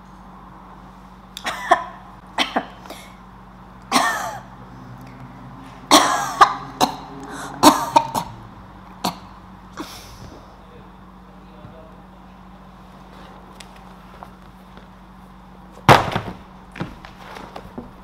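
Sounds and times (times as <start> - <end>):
woman clearing her throat: 1.4 - 3.2, 3.9 - 4.5, 5.9 - 8.4
woman coughing: 1.4 - 3.2, 3.9 - 4.5, 5.9 - 8.4.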